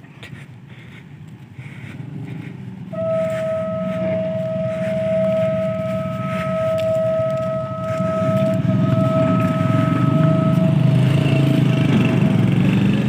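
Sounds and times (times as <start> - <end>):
tractor engine running: 0.0 - 13.0
locomotive whistle: 2.9 - 12.5.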